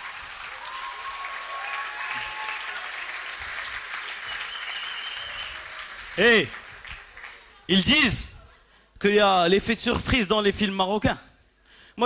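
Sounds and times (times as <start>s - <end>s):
audience applauding: 0.0s - 8.1s
high whistles: 4.0s - 5.7s.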